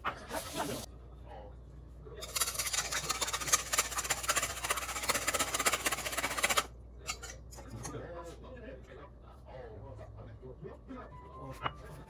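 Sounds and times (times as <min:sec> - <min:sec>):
whisk clinking in metal bowl: 0:02.2 - 0:07.4.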